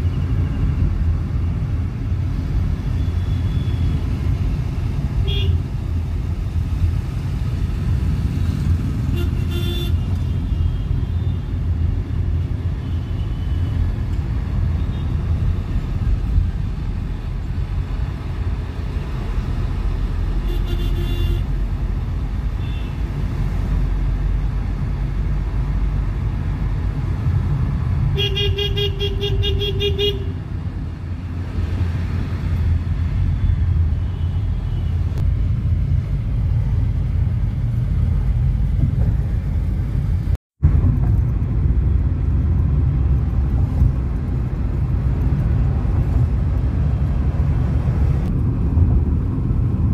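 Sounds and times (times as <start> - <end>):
car engine rumble and road noise: 0.0 - 49.9
pulsing car horn: 9.1 - 10.1, 20.4 - 21.5, 28.2 - 30.4.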